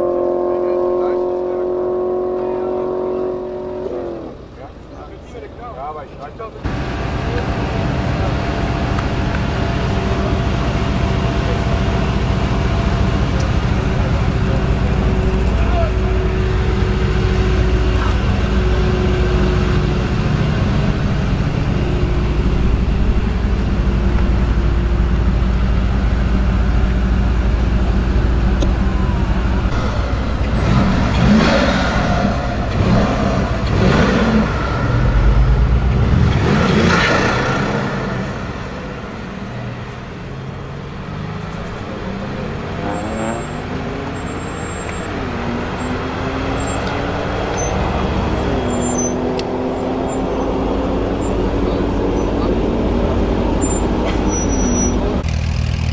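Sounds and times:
van engine idling: 3.5s - 36.3s
engine pulling away through gears: 6.6s - 55.9s
engine revving sharply: 28.5s - 55.9s.

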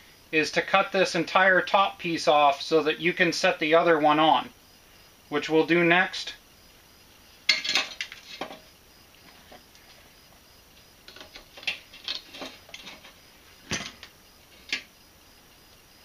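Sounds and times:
metal tools clanking on steel: 7.5s - 8.7s, 11.1s - 14.9s.

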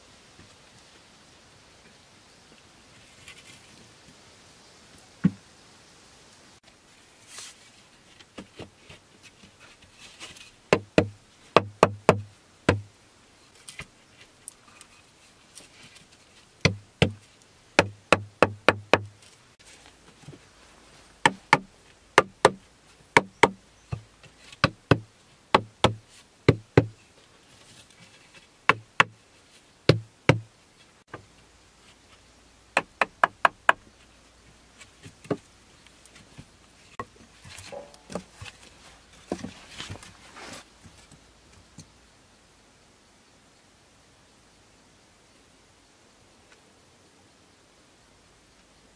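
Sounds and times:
wooden poles knocking together: 21.2s - 22.6s, 23.2s - 27.0s, 37.0s - 40.0s.

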